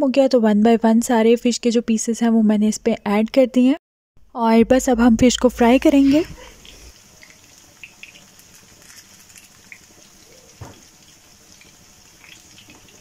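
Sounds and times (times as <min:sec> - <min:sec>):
fish sizzling in oil: 0:06.4 - 0:13.0.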